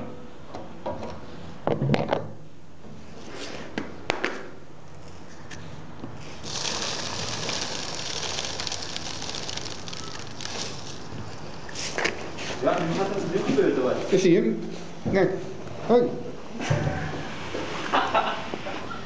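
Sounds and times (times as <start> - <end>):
gas hissing from plastic bottle: 6.2 - 12.5.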